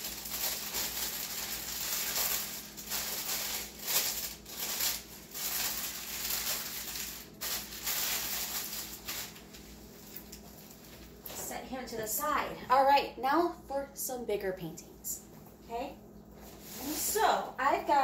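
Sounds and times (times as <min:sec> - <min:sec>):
plastic packaging crinkling: 0:00.0 - 0:11.5.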